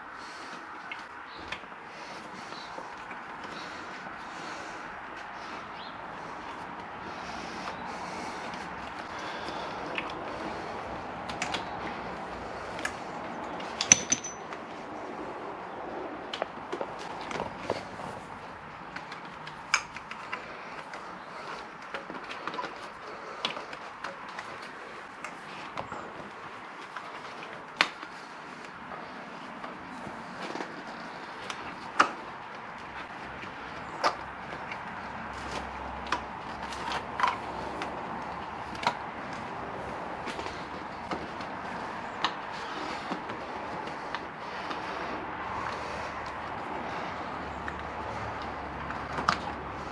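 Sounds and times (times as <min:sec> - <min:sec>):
hands clicking and knocking hose: 0:06.4 - 0:14.8, 0:16.2 - 0:45.0
sharp metallic clink: 0:13.8 - 0:14.6.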